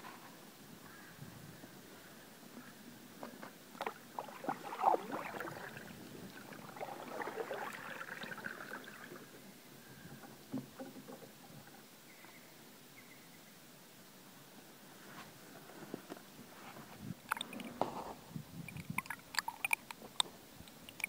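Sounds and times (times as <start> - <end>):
canoe paddle strokes in water: 3.2 - 9.4
water splashes and drips: 3.8 - 9.4, 18.7 - 21.0
water swishing: 3.8 - 9.4, 18.7 - 19.9.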